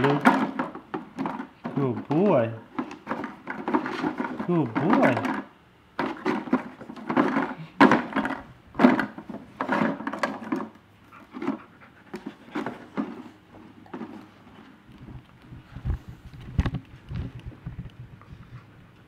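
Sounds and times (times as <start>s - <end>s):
plastic bottles clattering: 0.0s - 10.8s, 12.2s - 14.6s
treats rattling inside bottles: 0.0s - 10.8s.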